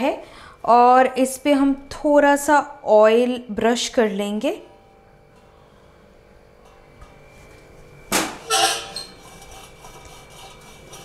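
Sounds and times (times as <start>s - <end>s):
brush rubbing on metal tray: 8.5s - 11.0s.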